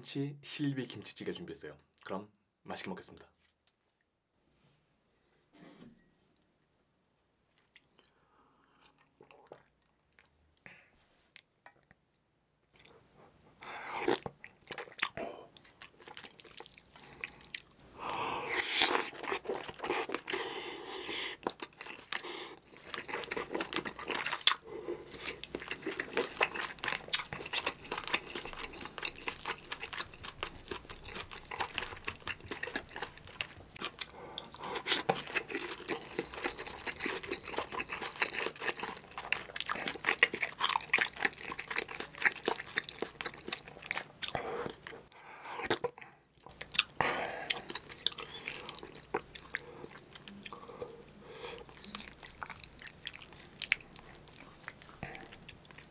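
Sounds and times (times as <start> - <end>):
wet chewing and crunching: 13.9 - 55.9.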